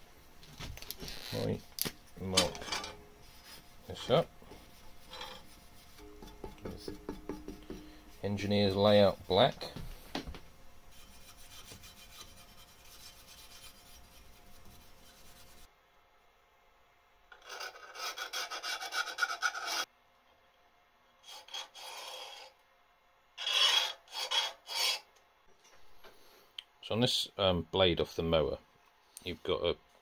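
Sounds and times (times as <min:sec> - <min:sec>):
scriber scratching steel: 0:02.2 - 0:09.6, 0:10.9 - 0:15.7, 0:23.4 - 0:25.0.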